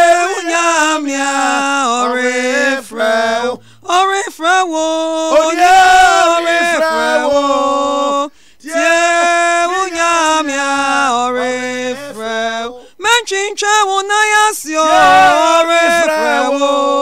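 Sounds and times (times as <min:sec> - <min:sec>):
person singing unaccompanied: 0:00.0 - 0:17.0
singer breathing: 0:03.6 - 0:03.9, 0:08.3 - 0:08.6, 0:12.8 - 0:13.0.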